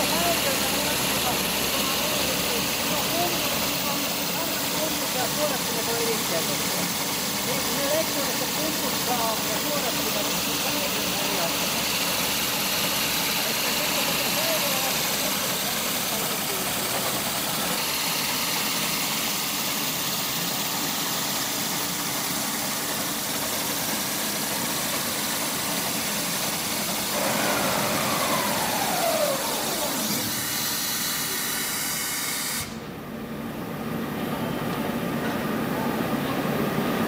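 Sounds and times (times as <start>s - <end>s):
boring mill whirring and hissing: 0.0s - 37.0s
machine whine falling in pitch: 27.2s - 30.2s.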